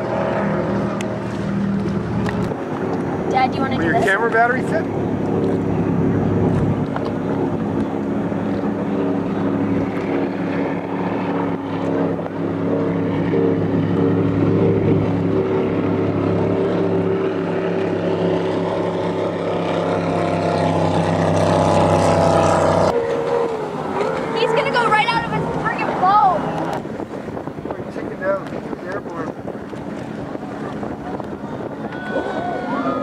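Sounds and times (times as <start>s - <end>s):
powerboat engine running: 0.0s - 33.0s.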